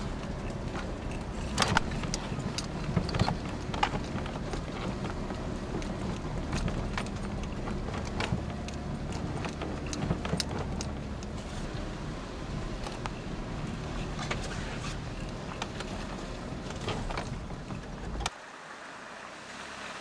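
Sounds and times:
vehicle engine running: 0.0 - 18.3
sharp clicks and knocks: 0.2 - 11.4, 14.1 - 18.3.

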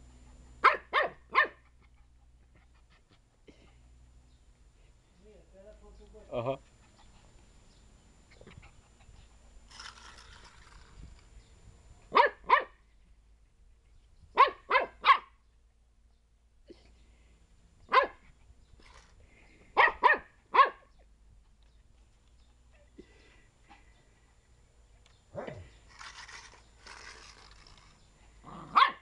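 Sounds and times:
puppy yapping: 28.6 - 29.0.

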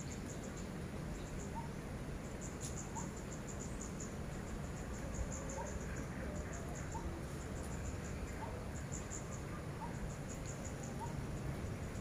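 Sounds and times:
crickets chirping: 0.0 - 12.0
faint low background hum: 0.0 - 12.0.

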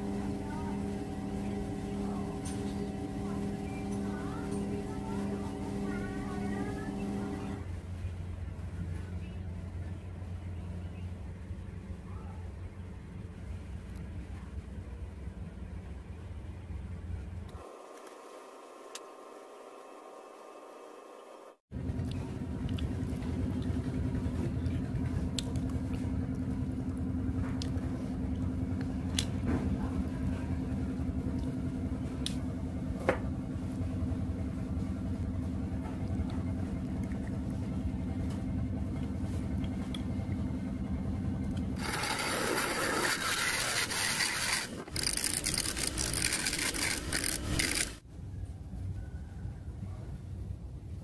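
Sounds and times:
machine humming: 0.0 - 7.7, 17.5 - 48.0.

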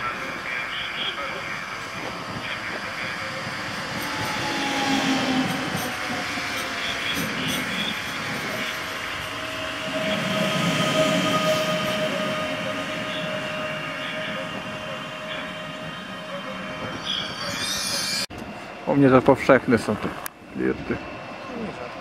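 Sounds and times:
wheel and rail rumble: 0.0 - 22.0
electric train motor whine: 1.1 - 18.3.

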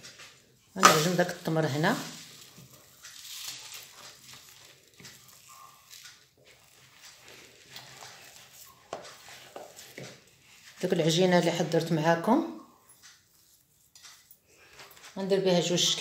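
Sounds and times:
spoon scraping sticky paste: 0.8 - 11.5.

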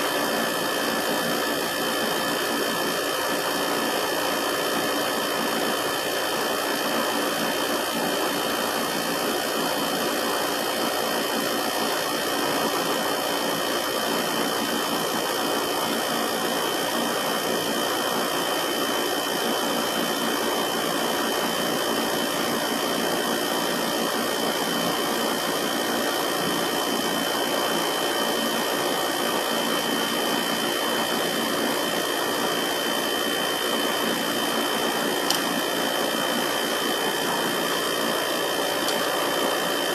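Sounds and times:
air conditioner humming: 31.2 - 39.9.

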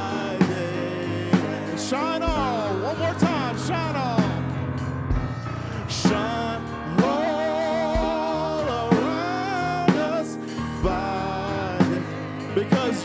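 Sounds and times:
bass line: 0.0 - 13.0
drum beat: 0.0 - 13.0
vocal group singing gospel: 0.0 - 13.0.

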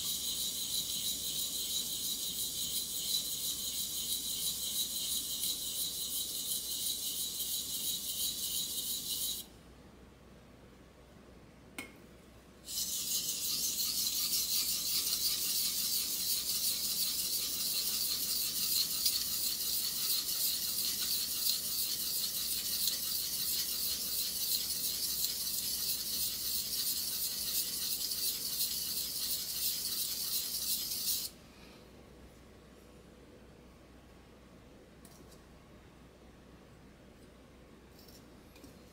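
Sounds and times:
knife scraping on wet whetstone: 0.0 - 9.4, 12.7 - 31.3.

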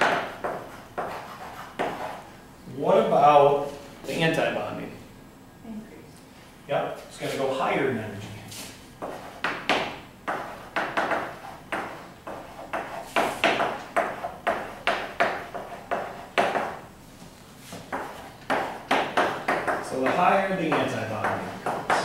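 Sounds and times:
chalk tapping and scraping on blackboard: 0.0 - 2.4, 8.6 - 22.0.

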